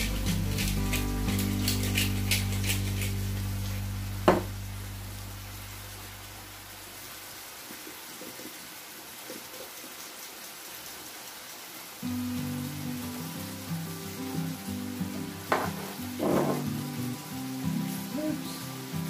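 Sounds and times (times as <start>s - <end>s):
background music: 0.0s - 5.6s, 12.0s - 19.0s
tomatoes sizzling in a frying pan: 0.0s - 19.0s.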